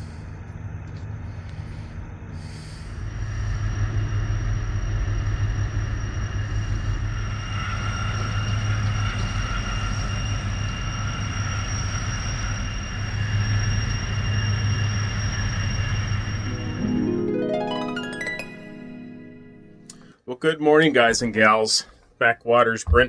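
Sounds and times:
thin high whine: 1.7 - 20.2.

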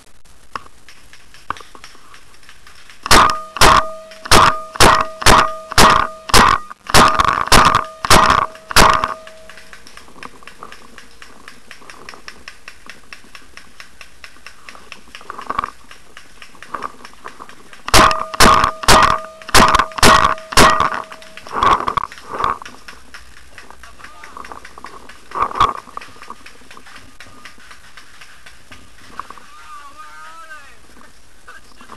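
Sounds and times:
paintball marker firing: 2.9 - 13.8, 14.7 - 29.4
steady tone: 3.0 - 10.3, 17.9 - 22.6.

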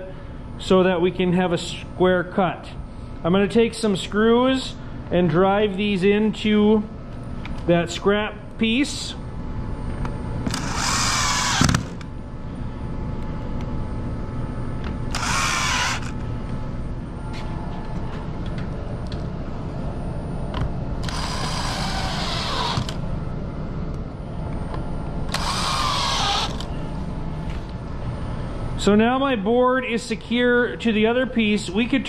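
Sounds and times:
cordless drill driving screws: 10.5 - 12.0, 15.1 - 16.2, 21.0 - 23.0, 25.3 - 26.7.

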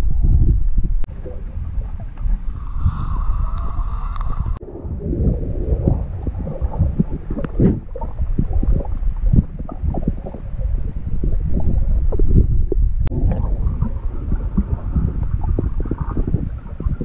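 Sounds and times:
underwater rumbling water: 0.0 - 17.0
small knocks underwater: 5.1 - 17.0.

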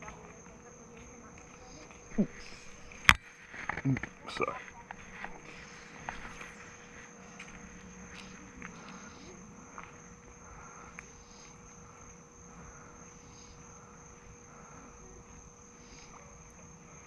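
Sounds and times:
high-pitched insect trill: 0.0 - 17.0
softer insect call: 0.0 - 17.0.

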